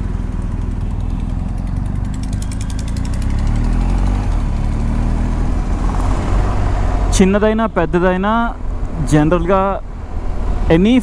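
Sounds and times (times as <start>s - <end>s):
motorcycle engine accelerating: 0.0s - 7.7s.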